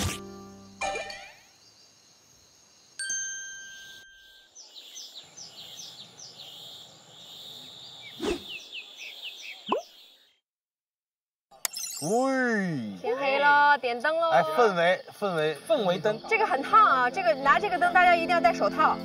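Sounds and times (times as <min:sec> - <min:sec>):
faint outdoor hiss: 0:00.2 - 0:10.3, 0:11.6 - 0:19.0
bright chime: 0:03.0 - 0:04.5, 0:11.7 - 0:12.4
birds chirping: 0:03.7 - 0:10.5.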